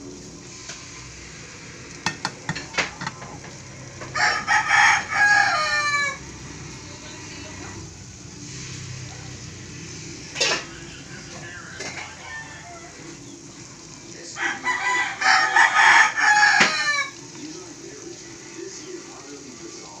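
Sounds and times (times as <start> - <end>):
rooster crowing: 2.2 - 6.7, 10.5 - 13.5, 14.2 - 17.2.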